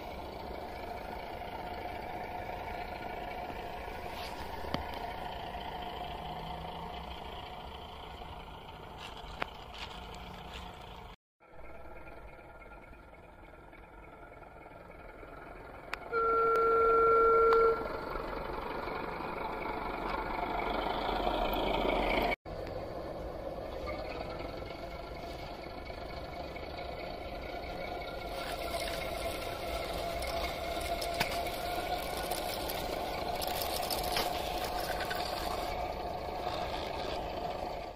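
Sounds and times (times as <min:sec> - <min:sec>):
model train diesel engine sound: 0:00.0 - 0:37.9
train horn blast: 0:16.1 - 0:18.0.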